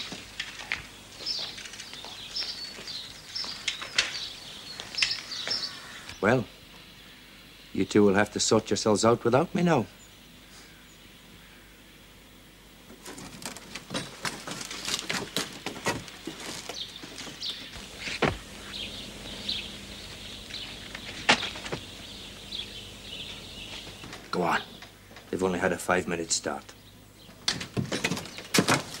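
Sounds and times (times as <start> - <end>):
crackles and snaps: 0.0 - 5.3, 13.0 - 25.3
birds chirping: 0.0 - 12.1, 14.4 - 29.0.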